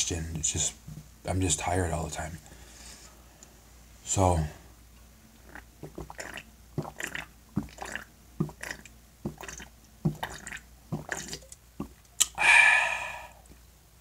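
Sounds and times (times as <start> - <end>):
person gulping a drink: 5.4 - 12.4
breathy exhale: 12.4 - 13.5.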